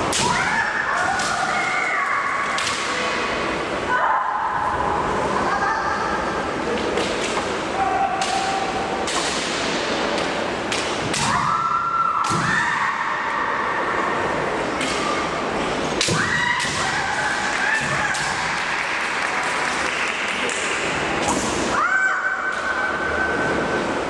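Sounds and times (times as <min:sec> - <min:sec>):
bamboo swords clacking: 0:08.2 - 0:11.4.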